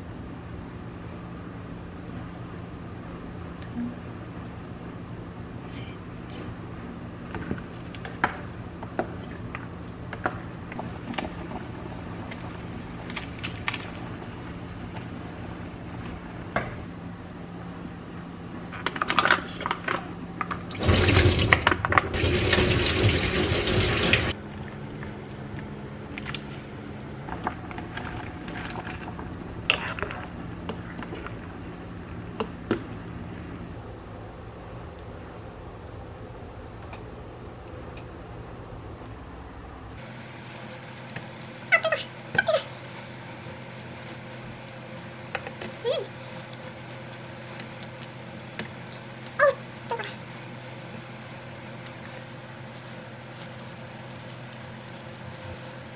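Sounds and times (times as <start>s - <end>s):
steady low hum: 0.0s - 55.9s.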